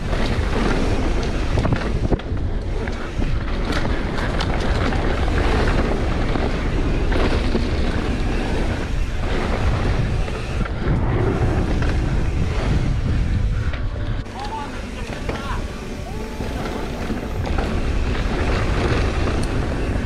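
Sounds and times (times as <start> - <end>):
bike rattling over bumps: 0.0 - 20.0
bike tyres rolling on dirt: 0.0 - 20.0
wind buffeting microphone: 0.0 - 20.0.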